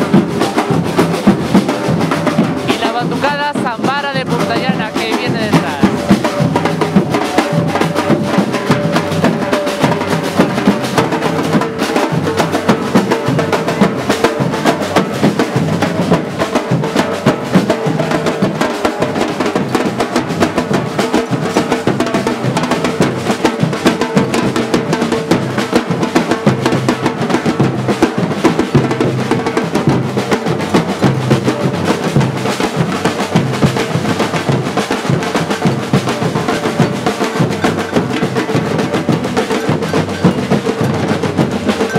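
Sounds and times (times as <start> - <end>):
samba percussion group drumming: 0.0 - 41.9.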